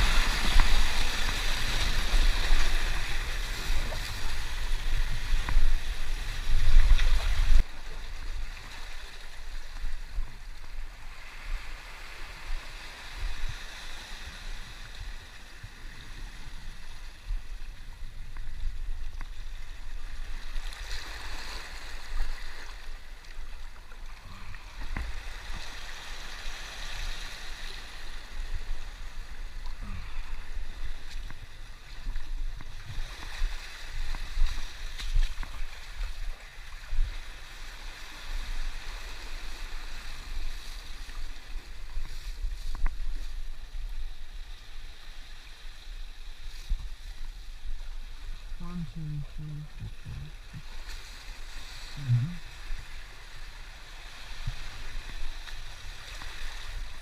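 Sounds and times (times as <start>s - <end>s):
seawater washing over rocks: 0.0s - 14.0s.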